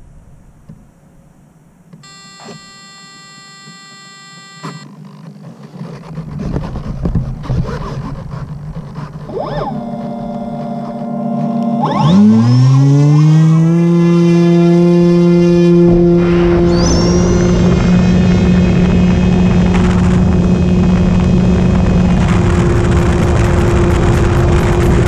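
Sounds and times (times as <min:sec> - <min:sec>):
electric motor and propeller hum: 0:01.9 - 0:25.0
electronic beep: 0:02.0 - 0:04.9, 0:11.6 - 0:13.0, 0:16.4 - 0:18.1
wind rush: 0:14.8 - 0:25.0.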